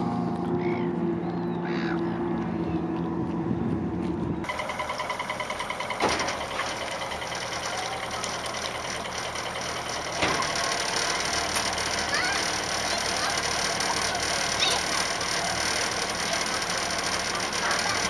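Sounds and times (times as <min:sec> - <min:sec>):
motor knock: 0:04.5 - 0:18.0
outboard motor idling: 0:04.5 - 0:18.0.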